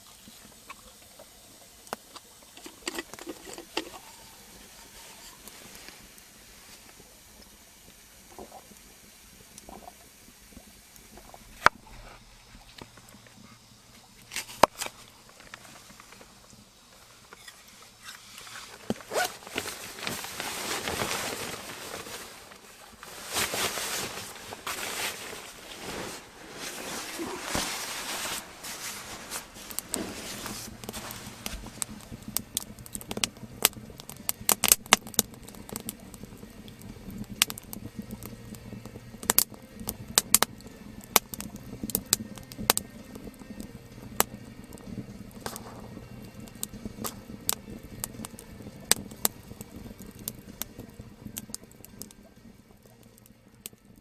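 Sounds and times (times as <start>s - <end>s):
sharp crackles and clicks: 0.0s - 54.0s
rustling: 17.3s - 32.2s
soft background music: 23.2s - 54.0s.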